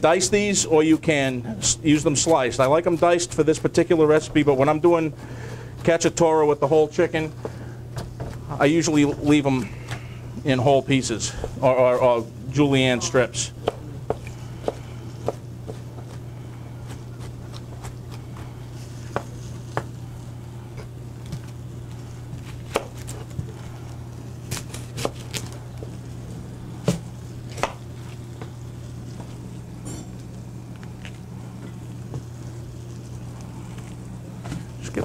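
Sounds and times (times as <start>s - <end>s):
steady low hum: 0.0s - 35.0s
knife chopping on cutting board: 13.6s - 16.2s, 16.8s - 20.0s, 22.4s - 23.3s, 26.8s - 27.8s.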